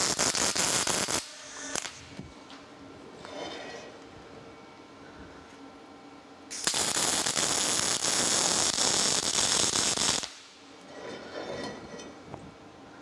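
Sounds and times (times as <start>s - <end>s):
welding arc crackling: 0.0s - 2.1s, 6.5s - 10.6s.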